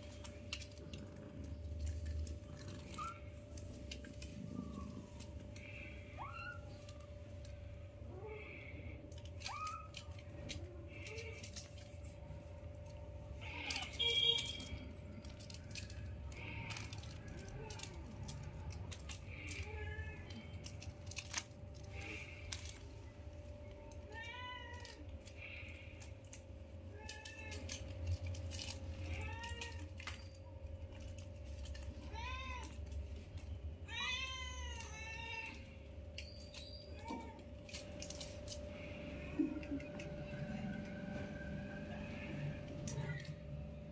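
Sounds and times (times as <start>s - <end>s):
kittens meowing: 0.0s - 11.8s, 23.8s - 43.4s
kittens scuffling: 0.0s - 43.9s.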